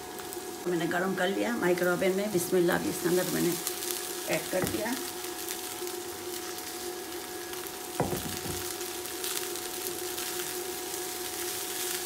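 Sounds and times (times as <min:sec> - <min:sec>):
steady hum: 0:00.0 - 0:11.5
rice sizzling in a pan: 0:00.0 - 0:12.0
knock: 0:08.0 - 0:08.6.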